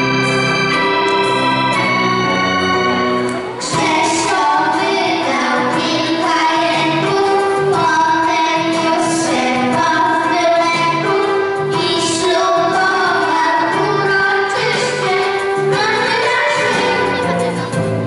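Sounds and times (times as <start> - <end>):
girls singing into microphones: 3.5 - 17.6.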